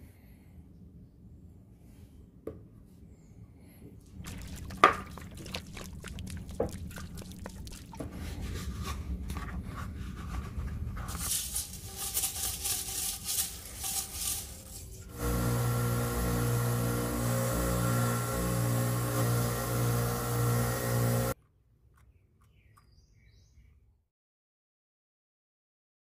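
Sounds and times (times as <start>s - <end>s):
liquid pouring and dripping on metal: 4.1s - 8.3s
toothbrush scrubbing metal: 11.1s - 15.4s.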